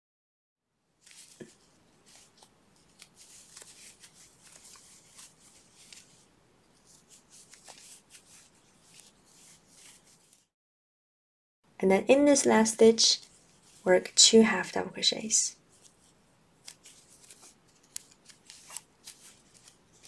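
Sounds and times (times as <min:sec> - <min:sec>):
yarn rustling: 0:01.0 - 0:10.5, 0:12.9 - 0:14.0, 0:15.6 - 0:20.0.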